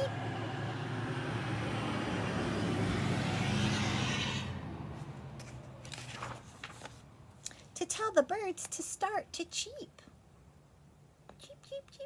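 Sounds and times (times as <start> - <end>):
car passing: 0.0 - 5.8
book page turning: 5.0 - 7.7.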